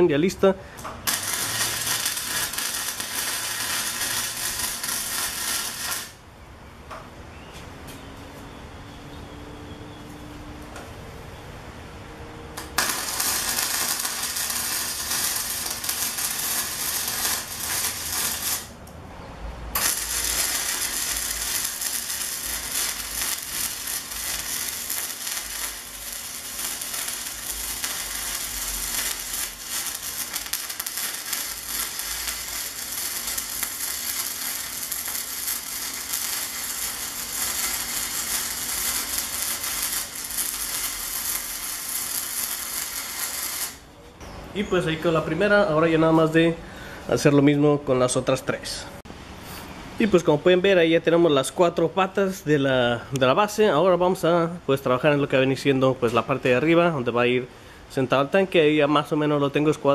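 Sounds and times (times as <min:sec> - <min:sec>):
arc welding crackling hiss: 0:01.0 - 0:06.2, 0:12.6 - 0:18.8, 0:19.7 - 0:43.9.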